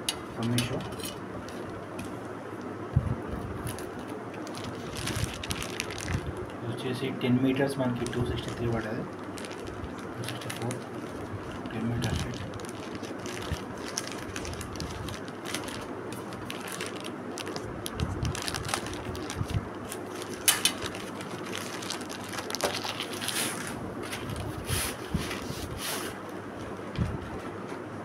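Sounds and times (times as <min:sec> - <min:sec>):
packaging crinkling and scraping: 0:03.6 - 0:06.6, 0:07.8 - 0:26.2
sharp crackle: 0:08.0 - 0:23.5.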